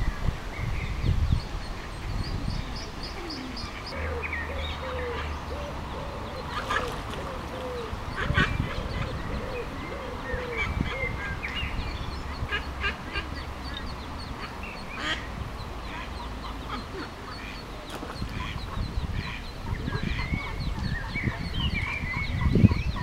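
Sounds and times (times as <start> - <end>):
ducklings peeping: 0.9 - 23.0
adult ducks calling: 3.1 - 23.0
water splashes: 6.5 - 7.7.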